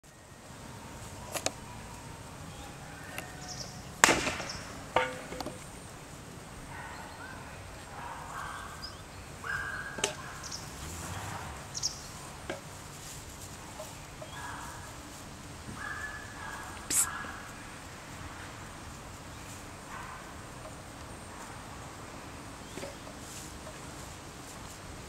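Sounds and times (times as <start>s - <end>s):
outdoor background noise: 0.0s - 25.0s
sharp knocks: 4.0s - 5.6s
faint short calls: 16.0s - 17.4s.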